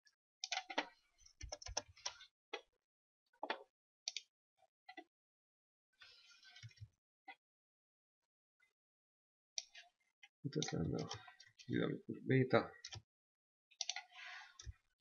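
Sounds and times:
keyboard and mouse clicks: 0:00.4 - 0:02.7, 0:03.4 - 0:04.3, 0:10.5 - 0:11.2, 0:12.8 - 0:13.0, 0:13.8 - 0:14.8.

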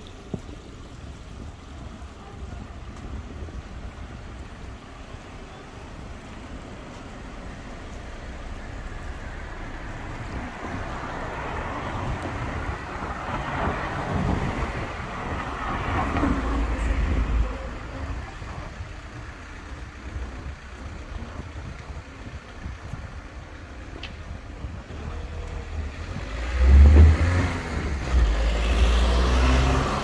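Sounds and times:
vehicle passing by: 0:25.1 - 0:30.0.

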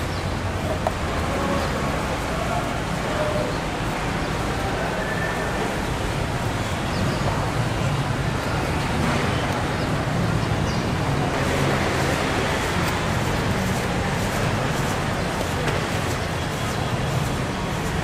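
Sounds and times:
indistinct voices: 0:00.0 - 0:18.0.

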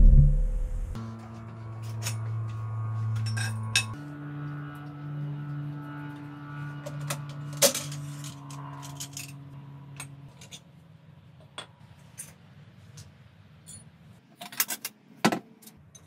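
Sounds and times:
steady low hum: 0:00.0 - 0:01.1.

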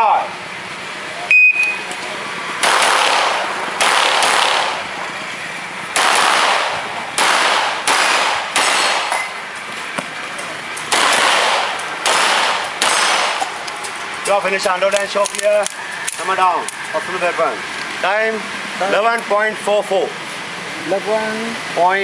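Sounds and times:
shot timer beep: 0:01.3 - 0:01.9
handgun shots echoing: 0:02.6 - 0:04.8, 0:06.0 - 0:09.3, 0:10.9 - 0:13.5.

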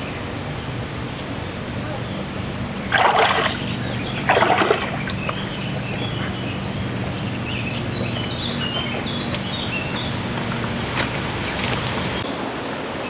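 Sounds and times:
bird chirping: 0:01.1 - 0:10.2
water splashing: 0:02.8 - 0:05.5.

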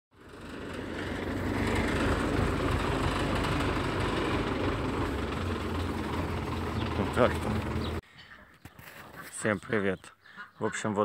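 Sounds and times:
tractor engine idling: 0:00.2 - 0:08.0.

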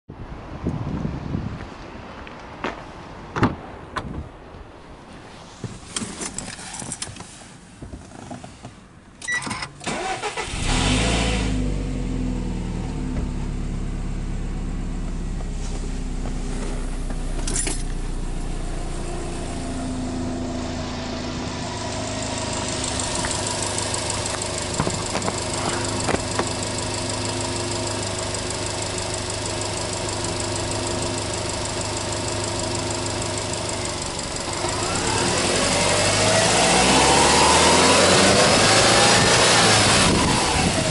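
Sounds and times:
car engine starting and idling: 0:09.0 - 0:40.9.

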